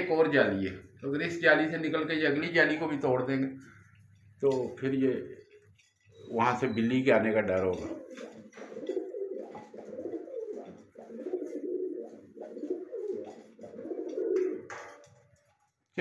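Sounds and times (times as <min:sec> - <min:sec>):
pigeons cooing: 0:05.3 - 0:15.3.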